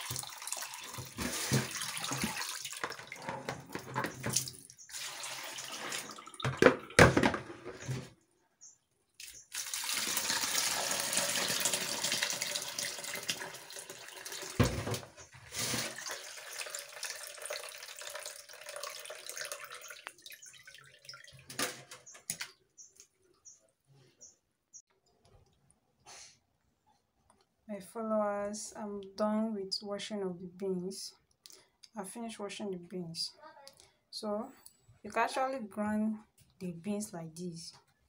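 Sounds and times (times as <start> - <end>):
tap running into a sink: 14.5 - 15.1.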